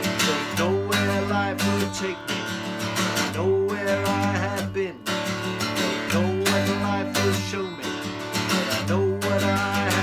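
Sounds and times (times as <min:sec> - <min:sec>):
acoustic guitar strumming: 0:00.0 - 0:10.0
man singing: 0:00.0 - 0:10.0.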